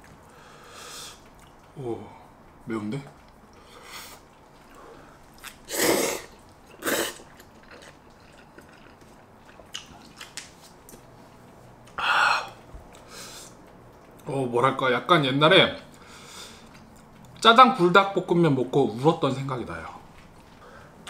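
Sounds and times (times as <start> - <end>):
man slurping noodles: 5.7 - 7.3.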